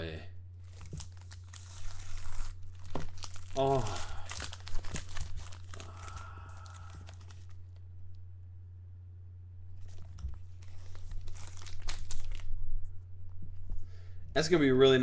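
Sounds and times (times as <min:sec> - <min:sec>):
steady low hum: 0:00.0 - 0:15.0
foil wrapper crinkling and tearing: 0:00.6 - 0:07.8, 0:09.8 - 0:12.6.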